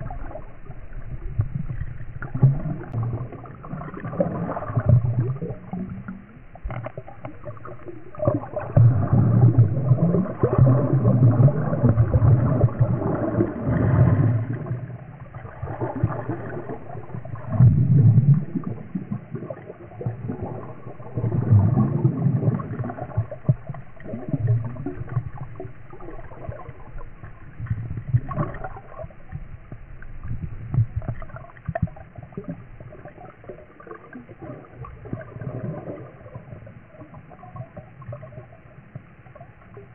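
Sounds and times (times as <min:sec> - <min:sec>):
underwater water gurgling and rushing: 0:00.0 - 0:39.9.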